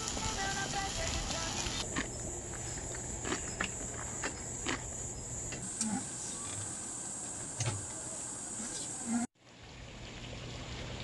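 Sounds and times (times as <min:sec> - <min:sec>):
crickets chirring: 0:00.1 - 0:09.3.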